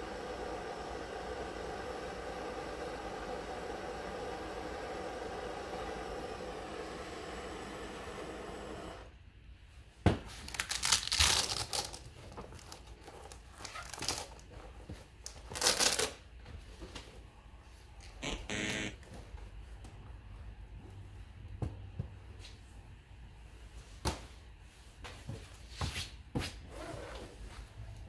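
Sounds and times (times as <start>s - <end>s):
blowtorch hissing: 0.0s - 9.1s
fabric wallet crinkling and rustling: 10.4s - 16.2s.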